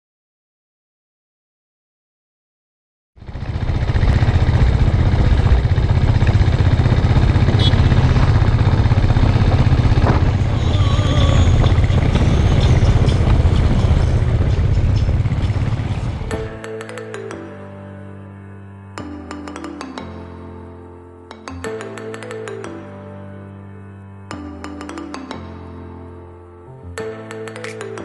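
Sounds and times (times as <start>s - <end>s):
motorcycle engine rumbling: 3.2s - 16.5s
wind noise: 3.5s - 16.5s.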